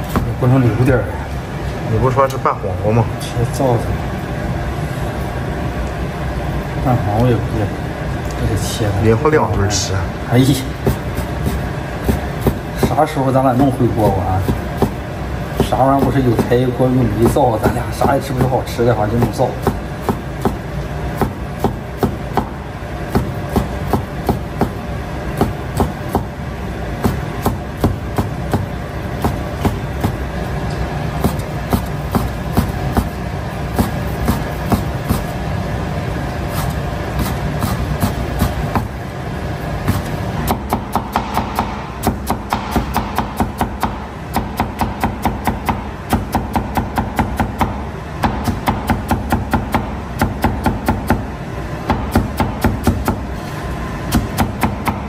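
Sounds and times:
steady background noise: 0.0 - 55.0
cleaver chopping on wooden board: 19.2 - 20.6, 23.1 - 24.8.

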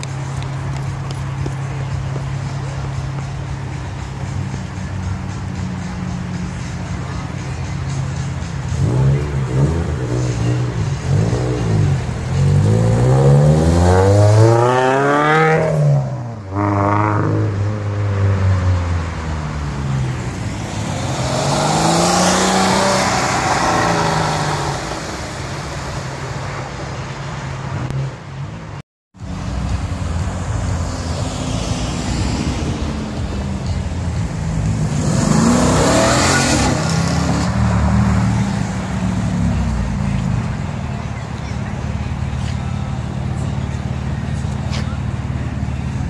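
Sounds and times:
car engine revving and accelerating: 8.6 - 25.6, 29.3 - 40.6
car engine passing by: 8.7 - 26.8, 29.3 - 41.0.

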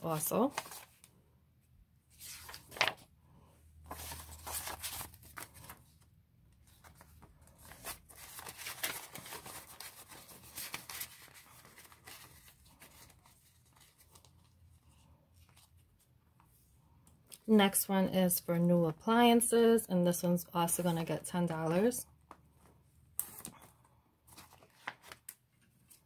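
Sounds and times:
banknotes and plastic pouch rustling: 3.8 - 6.0, 6.6 - 14.6.

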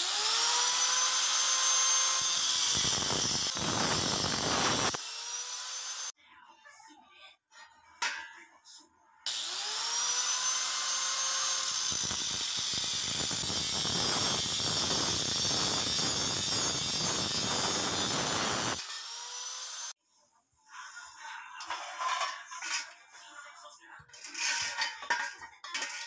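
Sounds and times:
angle grinder cutting steel: 0.0 - 6.2, 9.3 - 20.0.

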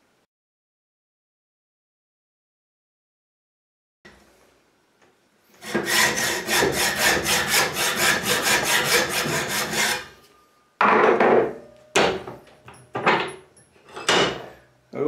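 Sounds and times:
hacksaw cutting metal: 5.6 - 10.2.

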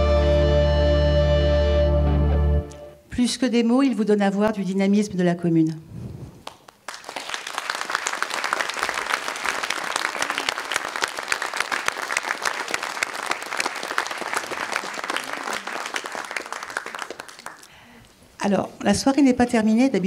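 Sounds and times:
audience applause: 6.4 - 17.7.

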